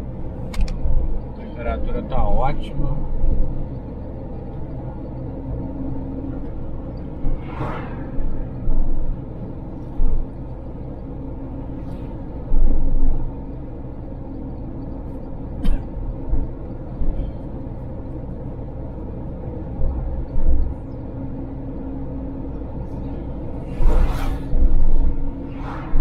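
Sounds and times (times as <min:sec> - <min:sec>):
car engine and road noise: 0:00.0 - 0:26.0
rushing surge: 0:07.2 - 0:08.6, 0:23.5 - 0:26.0.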